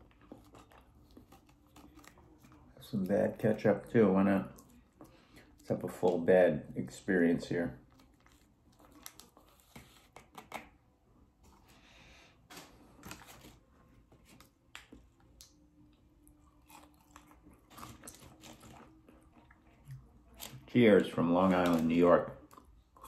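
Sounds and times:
faint chewing of food: 0:00.0 - 0:03.0, 0:14.2 - 0:20.7, 0:21.7 - 0:23.0.

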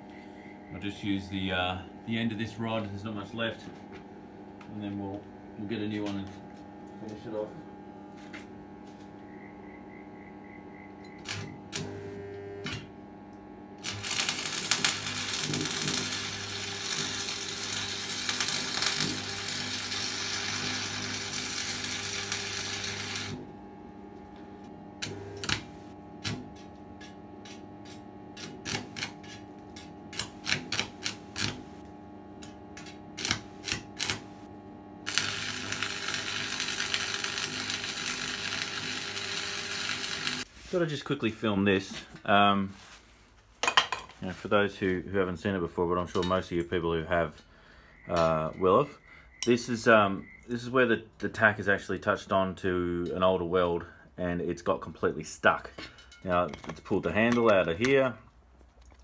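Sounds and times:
arc welding crackling and hissing: 0:11.2 - 0:12.8, 0:13.8 - 0:23.7, 0:25.0 - 0:41.0.

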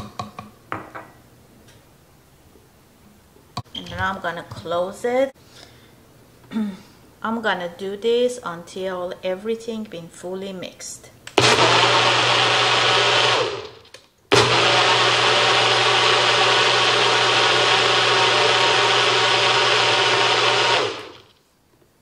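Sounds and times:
blender motor running: 0:11.4 - 0:21.4.

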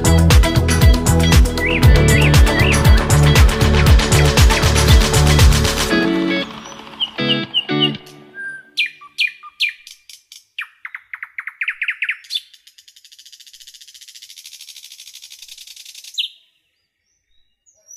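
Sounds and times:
bird song with falling trill: 0:06.0 - 0:14.9, 0:15.6 - 0:17.9.

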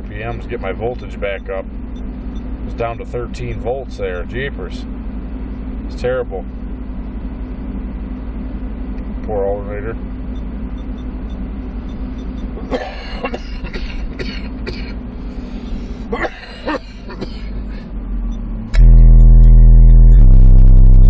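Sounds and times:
truck engine idling: 0:00.0 - 0:21.0
heavy-bass electronic music: 0:17.5 - 0:21.0.

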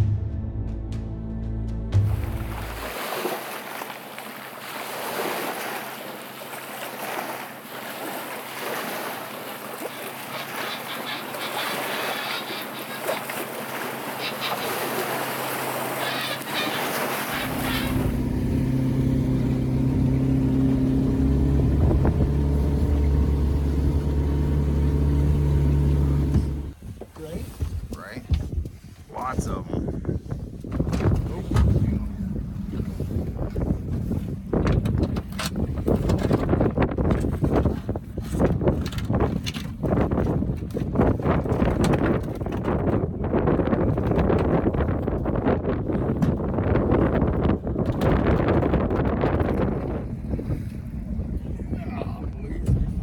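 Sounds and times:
boat motor humming: 0:00.0 - 0:53.0
broad rushing noise: 0:31.2 - 0:35.1.

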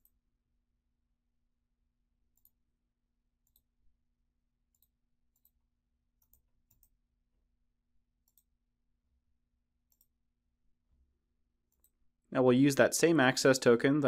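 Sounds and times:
computer mouse clicks: 0:02.3 - 0:02.6, 0:03.4 - 0:03.7, 0:04.7 - 0:05.6, 0:06.2 - 0:07.0, 0:08.2 - 0:08.6, 0:09.9 - 0:10.2, 0:11.7 - 0:12.0.

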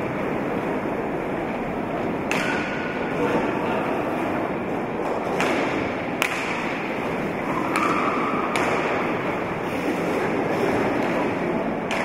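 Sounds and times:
hubbub in a hall: 0:00.0 - 0:12.0
sticks striking hard ball: 0:02.3 - 0:03.0, 0:05.3 - 0:06.9, 0:07.6 - 0:09.2.

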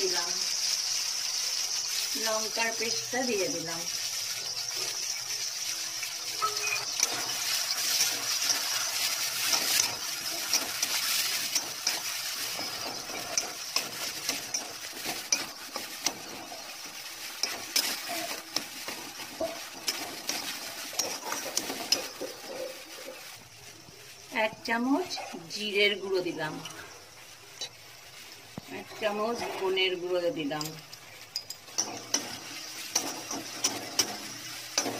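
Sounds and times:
food sizzling in hot oil: 0:00.0 - 0:34.9
metal spatula scraping pan: 0:06.4 - 0:23.3, 0:30.7 - 0:34.9.

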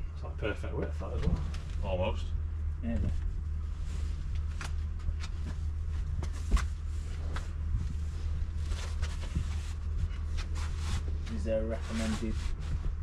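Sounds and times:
steady low hum: 0:00.0 - 0:13.0
fleece rustling and scraping: 0:03.0 - 0:13.0.

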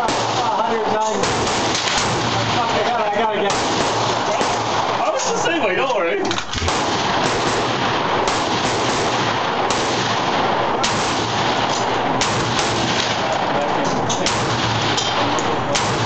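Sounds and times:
gunshots: 0:00.0 - 0:05.2, 0:06.4 - 0:16.0
loud din: 0:00.0 - 0:05.8.

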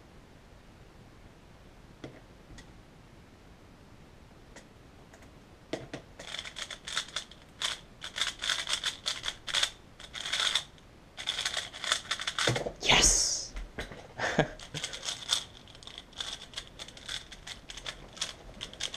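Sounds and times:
plastic cube clicking: 0:06.2 - 0:12.6, 0:14.6 - 0:18.9.

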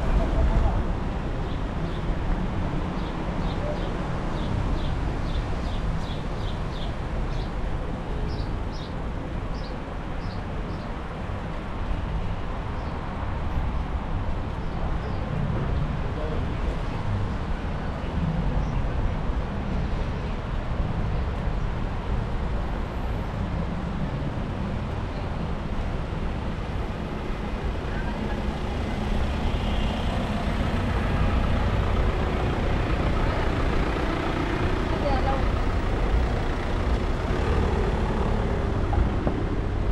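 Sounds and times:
traffic rumble: 0:00.0 - 0:39.9
indistinct voices: 0:30.2 - 0:39.4.

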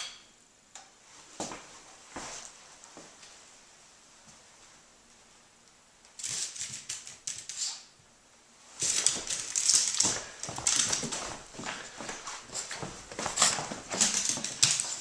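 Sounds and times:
dog claws clicking on floor: 0:06.1 - 0:07.9, 0:08.8 - 0:15.0.

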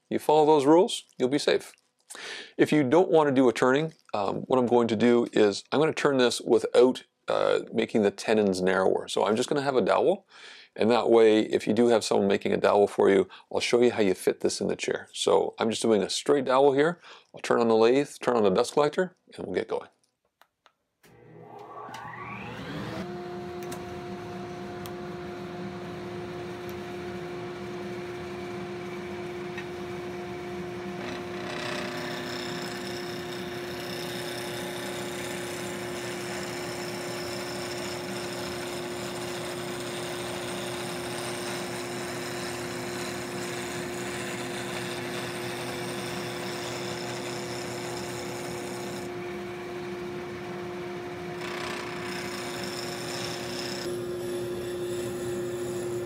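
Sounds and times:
lathe motor hum: 0:21.1 - 0:56.0
tool shaving spinning wood: 0:30.0 - 0:56.0.

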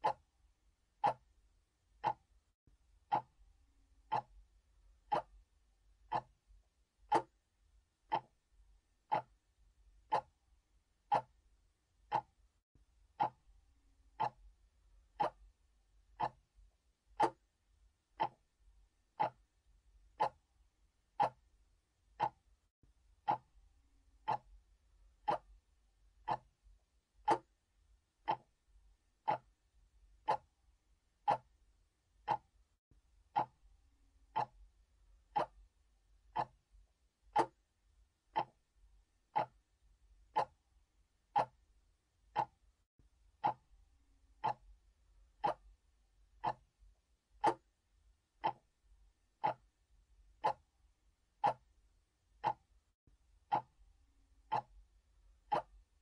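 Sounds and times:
mechanical clock ticking: 0:00.0 - 0:00.3, 0:01.0 - 0:01.3, 0:02.0 - 0:02.3, 0:03.1 - 0:03.4, 0:04.0 - 0:04.4, 0:05.1 - 0:05.4, 0:06.1 - 0:06.4, 0:07.1 - 0:07.4, 0:08.1 - 0:08.4, 0:09.1 - 0:09.4, 0:10.0 - 0:10.4, 0:11.0 - 0:11.4, 0:12.0 - 0:12.4, 0:13.2 - 0:13.5, 0:14.1 - 0:14.5, 0:15.2 - 0:15.4, 0:16.2 - 0:16.5, 0:17.2 - 0:17.4, 0:18.2 - 0:18.5, 0:19.2 - 0:19.5, 0:20.1 - 0:20.5, 0:21.2 - 0:21.4, 0:22.1 - 0:22.5, 0:23.2 - 0:23.5, 0:24.2 - 0:24.6, 0:25.2 - 0:25.6, 0:26.2 - 0:26.6, 0:27.2 - 0:27.5, 0:28.2 - 0:28.6, 0:29.2 - 0:29.6, 0:30.2 - 0:30.6, 0:31.2 - 0:31.6, 0:32.2 - 0:32.6, 0:33.3 - 0:33.6, 0:34.3 - 0:34.6, 0:35.3 - 0:35.7, 0:36.3 - 0:36.6, 0:37.3 - 0:37.6, 0:38.3 - 0:38.7, 0:39.3 - 0:39.7, 0:40.3 - 0:40.6, 0:41.3 - 0:41.7, 0:42.3 - 0:42.6, 0:43.4 - 0:43.7, 0:44.4 - 0:44.8, 0:45.4 - 0:45.7, 0:46.4 - 0:46.7, 0:47.4 - 0:47.7, 0:48.4 - 0:48.7, 0:49.4 - 0:49.7, 0:50.4 - 0:50.7, 0:51.4 - 0:51.7, 0:52.4 - 0:52.7, 0:53.5 - 0:53.8, 0:54.4 - 0:54.8, 0:55.5 - 0:55.8.

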